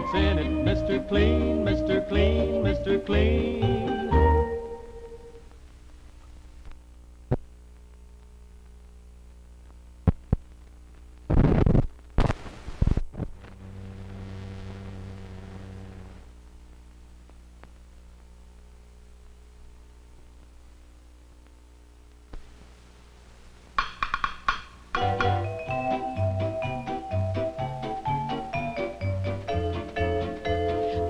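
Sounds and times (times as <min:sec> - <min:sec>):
low film soundtrack hum: 0:00.0 - 0:11.4, 0:12.0 - 0:31.0
sharp clicks and pops: 0:06.2 - 0:08.8, 0:09.6 - 0:13.6
burst of crackling noise: 0:10.0 - 0:16.3
low buzz: 0:11.2 - 0:23.6.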